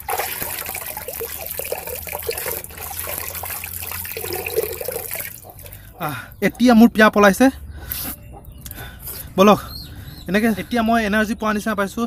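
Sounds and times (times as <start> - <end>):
water splashing and trickling: 0.0 - 6.6.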